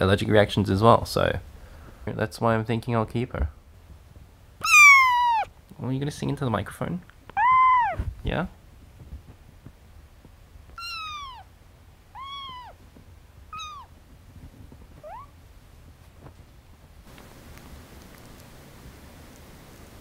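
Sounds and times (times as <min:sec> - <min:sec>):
kitten meowing: 0:04.6 - 0:05.5, 0:07.3 - 0:08.0, 0:10.8 - 0:11.5, 0:12.1 - 0:12.8, 0:13.5 - 0:13.9, 0:15.0 - 0:15.4.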